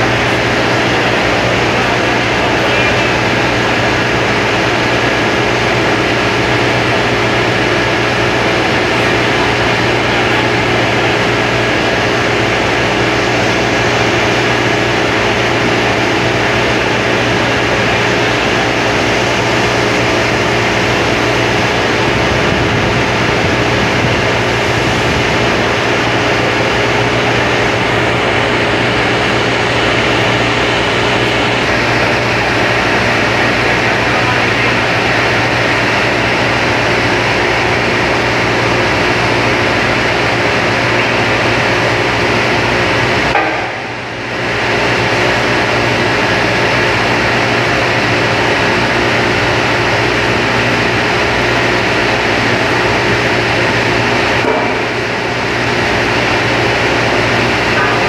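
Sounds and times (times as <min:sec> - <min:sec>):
constant low hum: 0:00.0 - 0:58.0
industrial furnace roar: 0:00.0 - 0:58.0.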